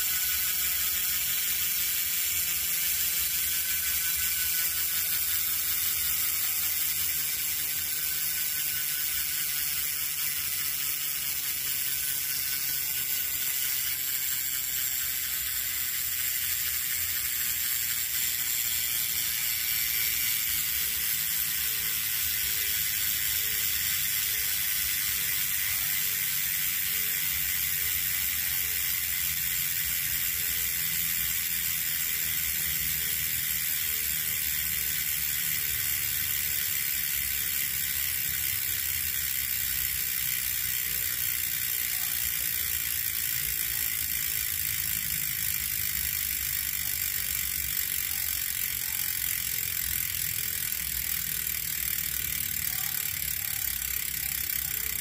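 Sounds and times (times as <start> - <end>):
bicycle freehub ratcheting: 0.0 - 55.0.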